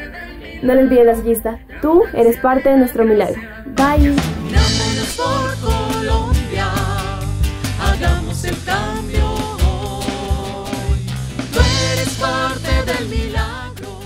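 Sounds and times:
person singing: 0:00.0 - 0:14.0
steady drum beat: 0:03.8 - 0:14.0.

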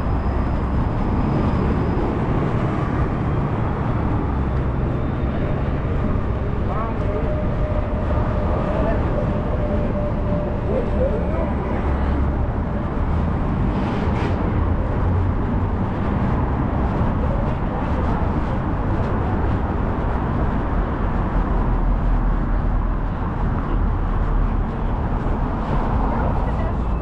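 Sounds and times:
road traffic rumble: 0:00.0 - 0:27.0.

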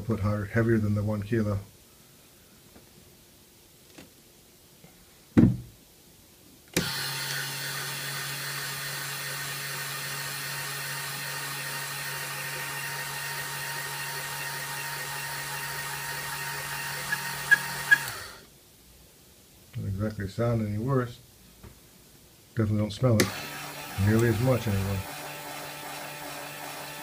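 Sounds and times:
thump: 0:05.4 - 0:05.7
small motor humming: 0:06.8 - 0:18.4, 0:23.3 - 0:27.0.

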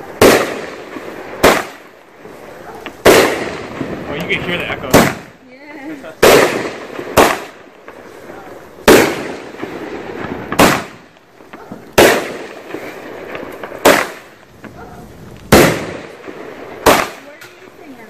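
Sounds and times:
firework bangs with echo: 0:00.0 - 0:18.0.

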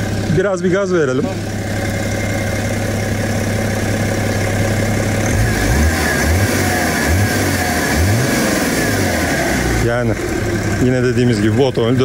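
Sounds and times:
diesel engine idling and revving: 0:00.0 - 0:12.0.

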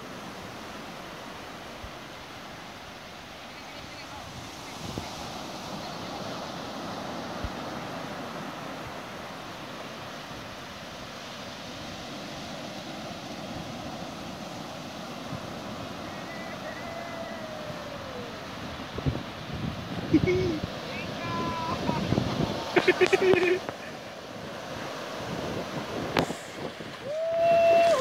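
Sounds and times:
ocean surf breaking: 0:00.0 - 0:28.0
wind on microphone: 0:03.9 - 0:09.2, 0:11.9 - 0:28.0
faint falling whistle: 0:16.0 - 0:18.2.

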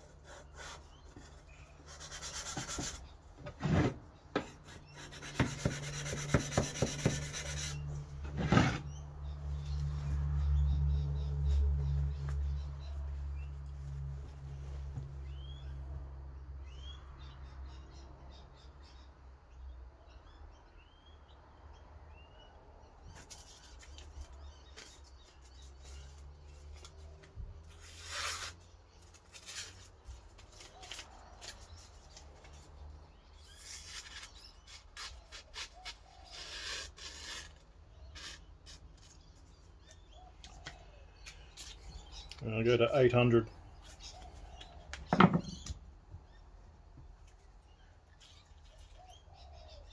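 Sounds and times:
knife scraping on abrasive paper: 0:04.5 - 0:08.9, 0:27.7 - 0:32.3, 0:33.4 - 0:39.3
small bird chirping: 0:22.2 - 0:49.9.

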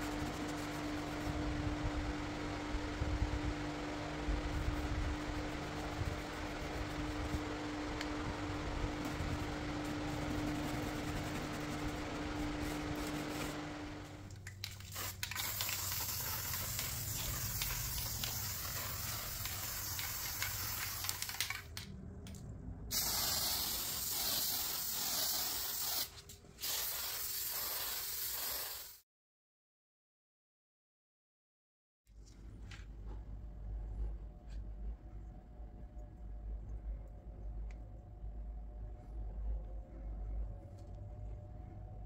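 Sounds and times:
steady low hum: 0:00.0 - 0:26.6, 0:32.2 - 0:42.0
aerosol spray can hissing: 0:14.6 - 0:21.6, 0:22.9 - 0:29.0.

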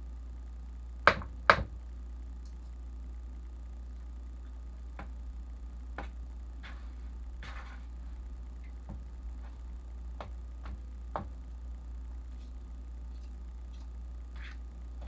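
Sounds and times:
steady low hum: 0:00.0 - 0:15.0
spoon scraping bowl: 0:06.6 - 0:07.9, 0:13.2 - 0:14.6.

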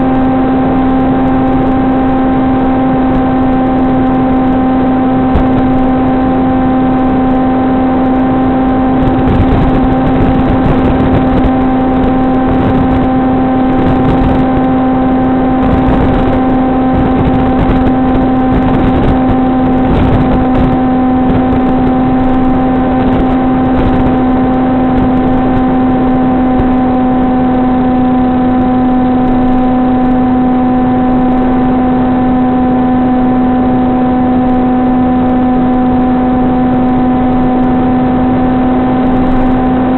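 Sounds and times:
wind noise: 0:00.0 - 0:39.9
electric motor hum: 0:03.1 - 0:29.7.

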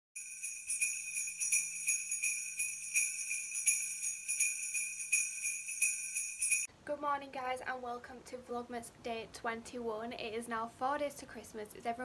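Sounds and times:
jingle bells shaken: 0:00.2 - 0:06.7.

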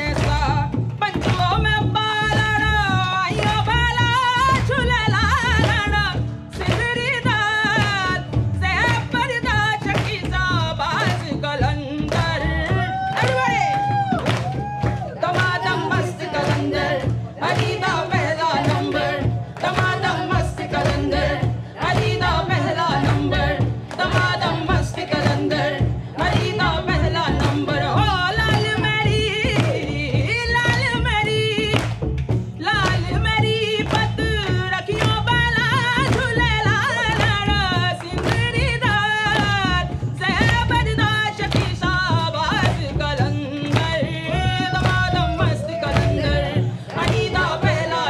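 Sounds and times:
hand claps: 0:00.0 - 0:04.8, 0:05.5 - 0:07.0, 0:07.6 - 0:48.0
hand drums: 0:00.0 - 0:48.0
voices singing: 0:15.1 - 0:30.2, 0:43.2 - 0:48.0.

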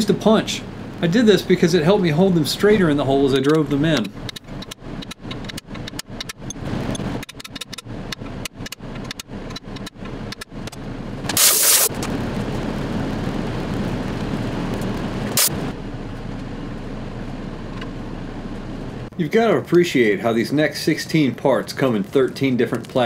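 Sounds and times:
steady background noise: 0:00.0 - 0:23.0
hiss-like burst: 0:11.3 - 0:12.1, 0:15.3 - 0:15.7.

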